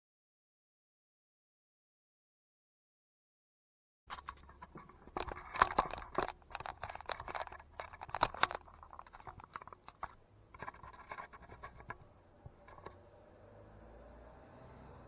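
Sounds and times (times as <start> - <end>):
handling noise on camera: 4.1 - 13.1.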